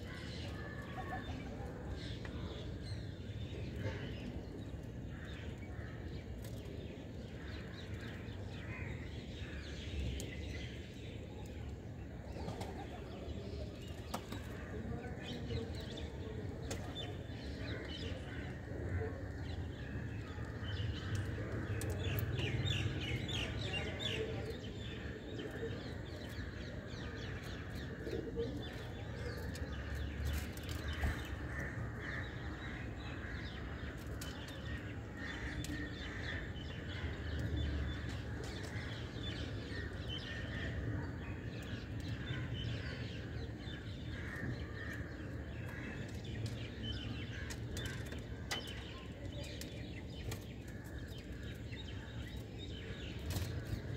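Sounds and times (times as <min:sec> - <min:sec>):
sparrows chirping: 0:13.2 - 0:53.9.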